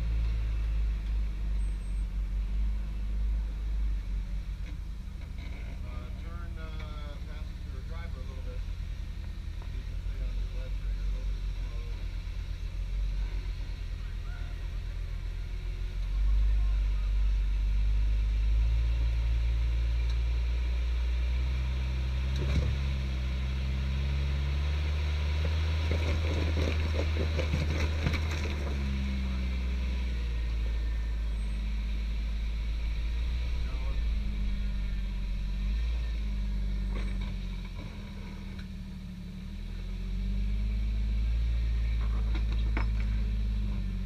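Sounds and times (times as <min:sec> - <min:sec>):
engine running at low revs: 0:00.0 - 0:44.0
tyres crunching over rocks: 0:25.4 - 0:29.2.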